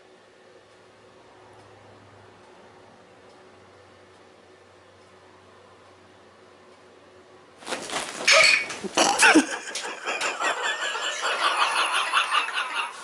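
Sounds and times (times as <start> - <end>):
people laughing: 8.9 - 13.0.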